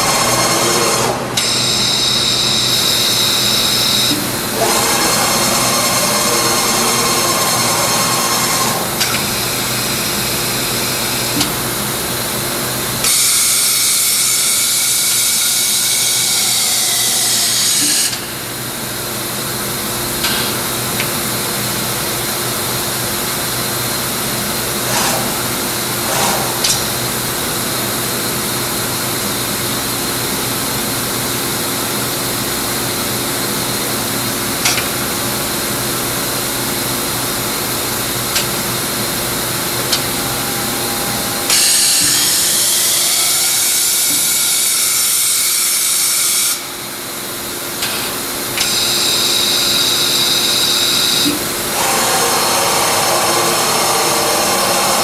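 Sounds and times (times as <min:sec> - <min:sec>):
machine hum: 0:00.0 - 0:45.4, 0:46.6 - 0:55.0
loud air hiss: 0:36.8 - 0:47.2.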